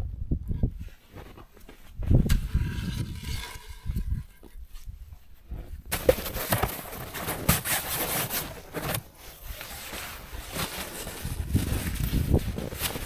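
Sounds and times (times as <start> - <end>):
foam mat rustling: 5.5 - 13.0.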